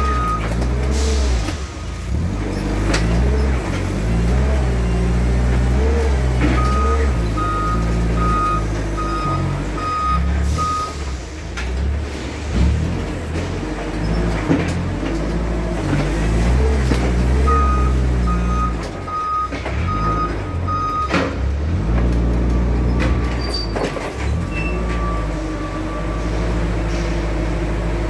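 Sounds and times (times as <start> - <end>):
reversing beeps: 0.0 - 0.5, 6.4 - 11.0, 17.5 - 21.2.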